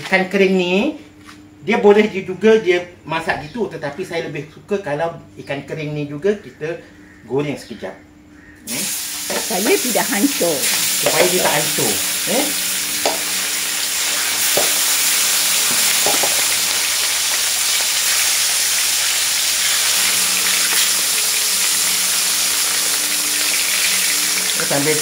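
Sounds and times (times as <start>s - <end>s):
fish sizzling in hot oil: 8.7s - 25.0s.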